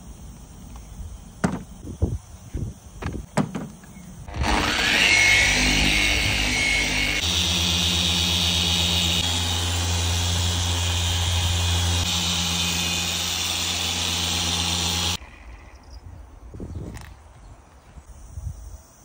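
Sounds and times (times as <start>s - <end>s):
machine polisher motor hum: 4.3s - 15.2s.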